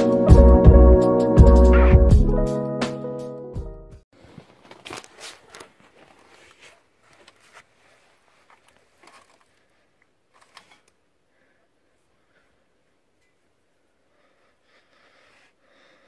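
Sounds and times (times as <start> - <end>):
faint rustling of jacket sleeve: 4.2 - 14.4.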